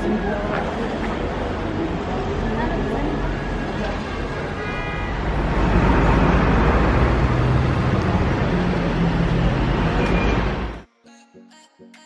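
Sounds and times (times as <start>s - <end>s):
vehicle passing close: 5.1s - 10.8s.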